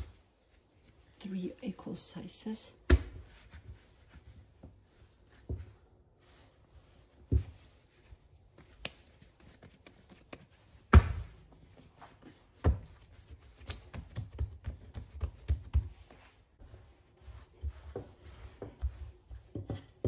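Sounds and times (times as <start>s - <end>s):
dough thudding on countertop: 2.9s - 3.5s, 10.8s - 11.4s.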